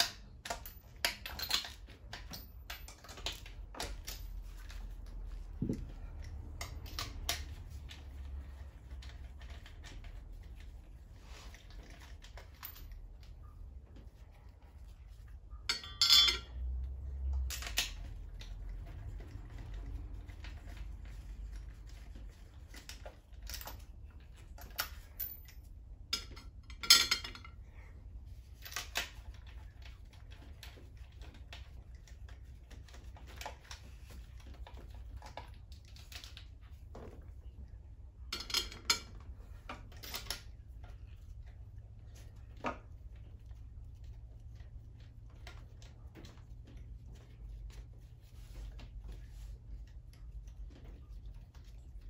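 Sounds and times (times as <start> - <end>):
metal hand tools clinking: 15.7 - 16.5.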